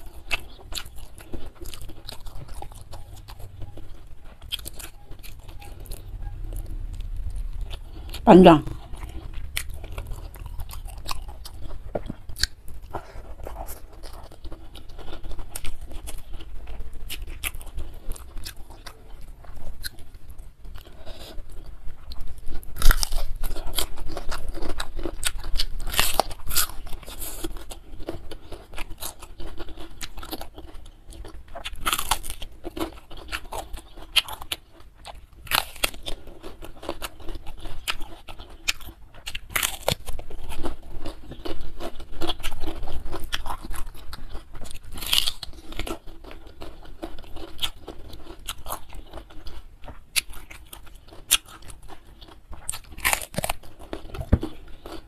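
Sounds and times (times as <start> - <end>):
chewing and crunching food: 0.0 - 55.0
crunchy bite into raw vegetable: 44.6 - 46.0.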